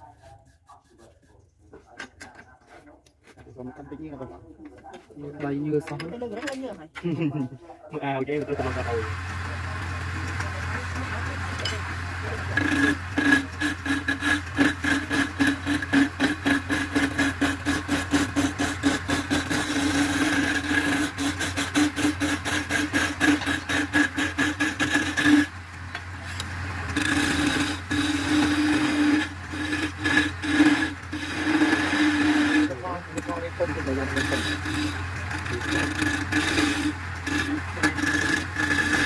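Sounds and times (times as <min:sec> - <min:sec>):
chisel cutting spinning wood: 0:08.4 - 0:39.0
lathe motor humming: 0:08.4 - 0:39.0.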